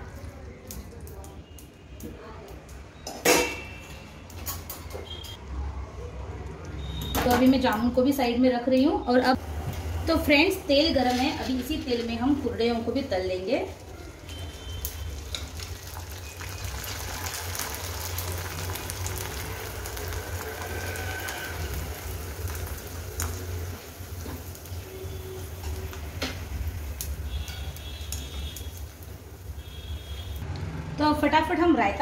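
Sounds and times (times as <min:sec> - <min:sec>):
food sizzling in hot oil: 0:09.4 - 0:30.5
sharp crackles: 0:14.0 - 0:30.4.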